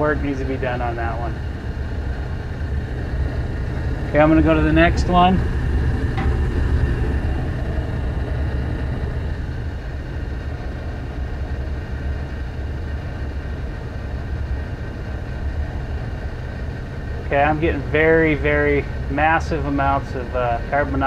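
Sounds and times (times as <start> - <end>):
gas furnace humming: 0.0 - 21.0.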